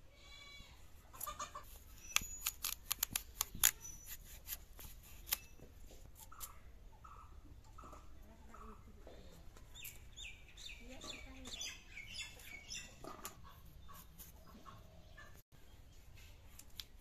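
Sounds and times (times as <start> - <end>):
hen clucking: 1.0 - 2.1, 6.2 - 9.1, 11.0 - 15.4
potatoes scraping on blade: 1.2 - 5.6.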